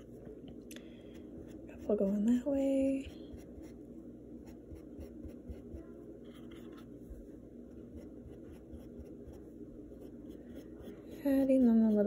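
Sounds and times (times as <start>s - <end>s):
low room hum: 0.0s - 12.0s.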